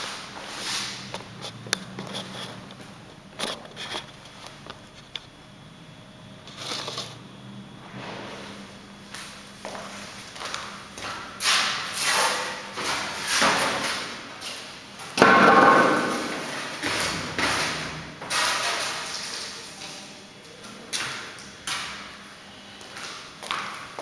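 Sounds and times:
footsteps in slippers: 0:09.1 - 0:11.6.

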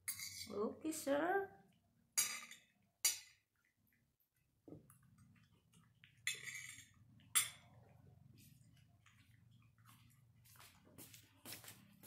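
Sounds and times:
cutlery clinking and scraping plate: 0:00.0 - 0:00.5, 0:06.2 - 0:07.7.

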